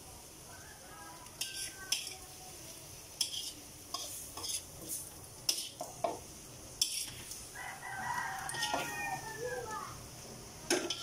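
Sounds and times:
faint sizzle: 0.0s - 11.0s
metal tongs scraping a wok: 1.2s - 2.4s, 3.1s - 7.5s, 8.4s - 9.1s, 10.7s - 11.0s.

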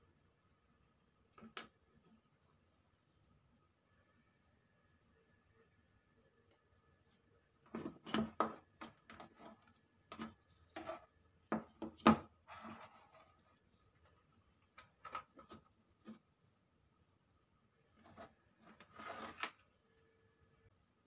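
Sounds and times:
scrape on wooden table: 10.2s - 11.1s, 12.4s - 13.5s, 18.0s - 19.6s.

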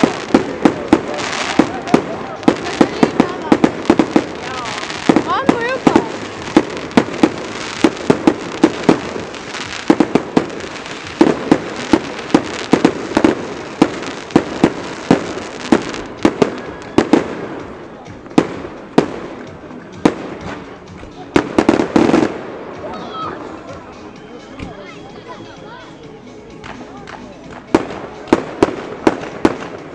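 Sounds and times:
fireworks bangs: 0.0s - 22.8s, 27.7s - 29.9s
fireworks crackling hiss: 0.0s - 22.9s.

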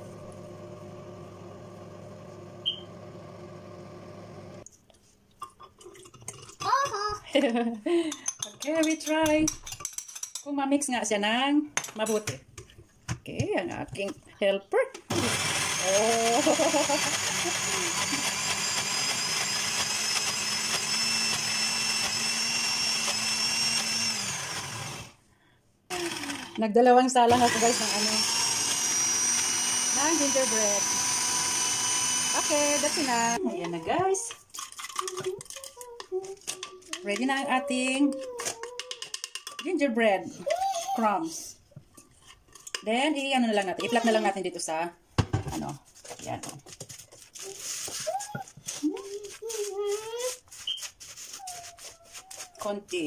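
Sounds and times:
blender motor running: 0.0s - 4.6s, 15.1s - 25.2s, 25.9s - 26.6s, 27.3s - 33.4s.

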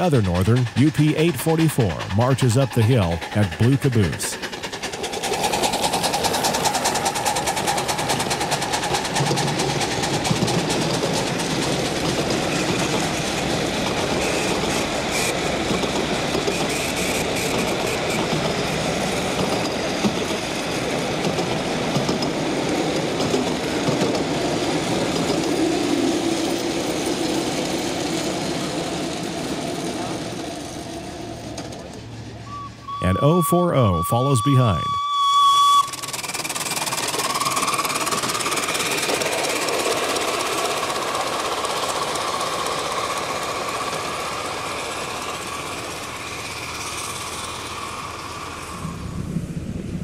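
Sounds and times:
steam exhaust beat: 0.0s - 20.2s
wheels clattering on rails: 0.0s - 32.7s, 35.8s - 49.0s.

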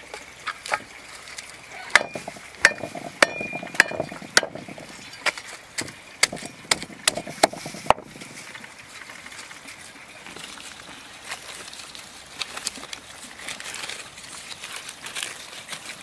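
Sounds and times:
cookware clinking and knocking: 1.9s - 4.9s.

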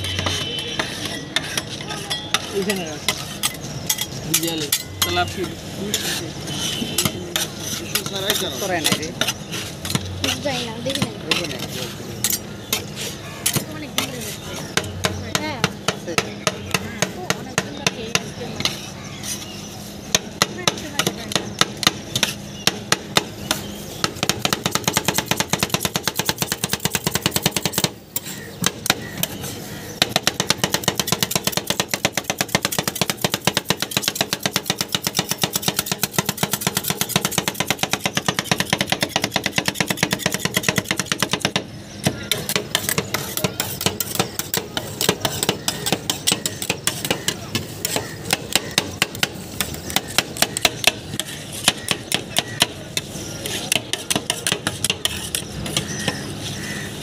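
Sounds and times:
metal spatulas clacking on steel: 42.3s - 53.1s, 53.7s - 55.9s.

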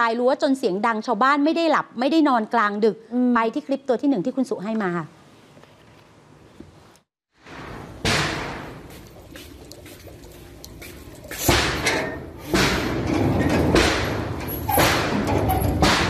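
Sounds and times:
fence being struck hard: 7.4s - 8.9s, 11.5s - 16.0s.

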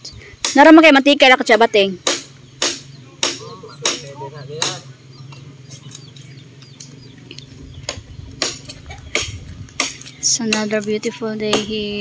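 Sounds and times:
blade chopping bamboo: 2.0s - 4.8s.

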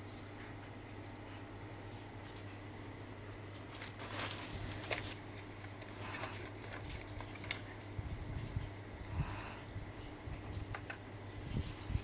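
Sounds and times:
steady low hum: 0.0s - 12.0s
rustling and scraping of box: 3.7s - 5.2s.

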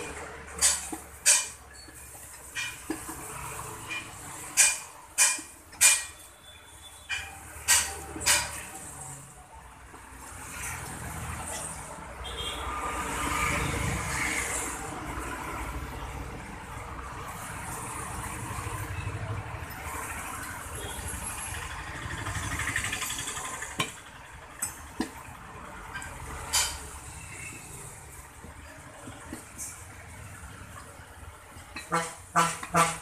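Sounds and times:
vehicle engine running: 20.8s - 26.0s.

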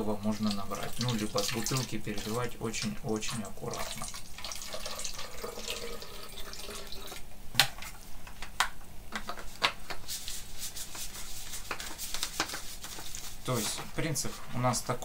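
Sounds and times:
water trickling into plastic bottle: 0.4s - 7.2s.

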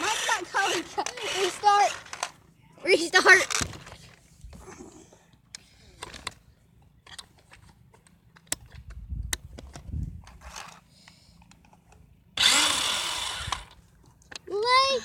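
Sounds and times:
toy car motor whirring: 0.0s - 2.4s, 10.2s - 10.8s, 12.4s - 13.8s.

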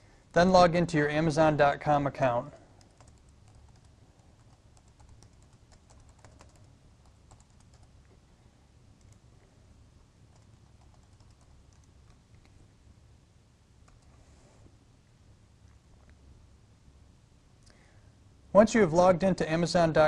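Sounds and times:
low steady hum: 0.0s - 20.0s
typing on computer keyboard: 2.8s - 7.9s, 10.3s - 12.4s, 13.9s - 14.1s.

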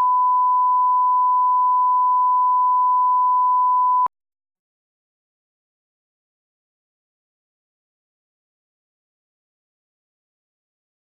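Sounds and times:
steady pure test tone beep: 0.0s - 4.1s.

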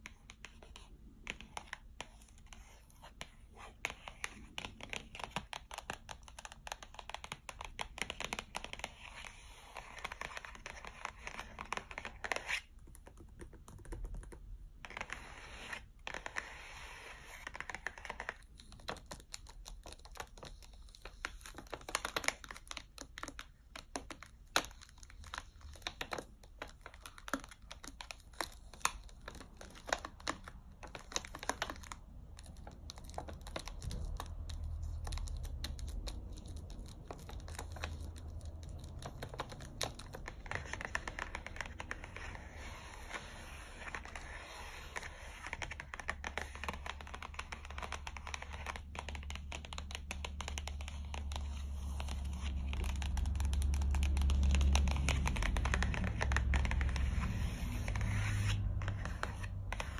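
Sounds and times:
scratching on cardboard packaging: 14.9s - 59.9s.

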